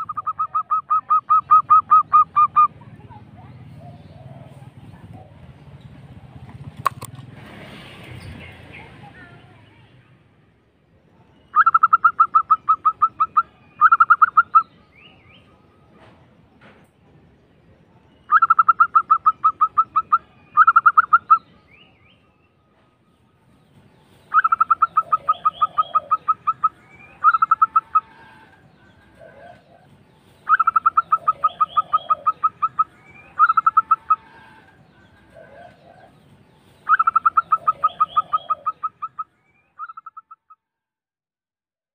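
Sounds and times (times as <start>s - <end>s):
dove cooing: 0.0s - 2.8s, 3.7s - 5.6s, 11.6s - 14.7s, 18.3s - 21.4s, 24.3s - 36.3s, 36.9s - 40.4s.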